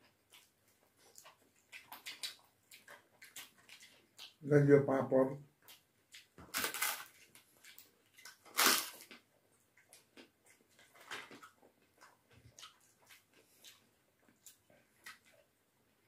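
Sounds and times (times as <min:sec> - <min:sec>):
crisp flatbread crackling: 0:06.2 - 0:09.3.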